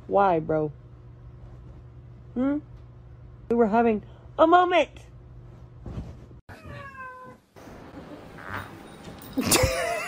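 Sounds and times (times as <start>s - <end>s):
cat meowing: 6.5s - 7.4s.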